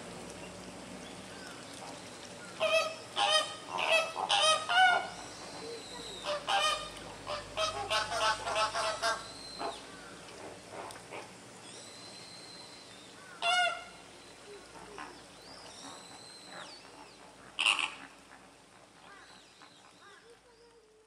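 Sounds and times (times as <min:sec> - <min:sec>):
flamingos honking: 0:02.5 - 0:05.2, 0:06.1 - 0:09.9, 0:13.4 - 0:14.0, 0:15.8 - 0:18.5.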